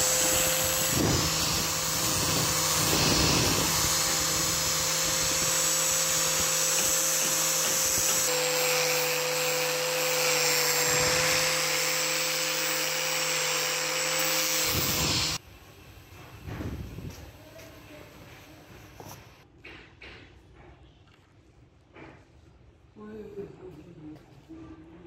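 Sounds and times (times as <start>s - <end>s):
angle grinder sanding wood: 0.0s - 15.4s.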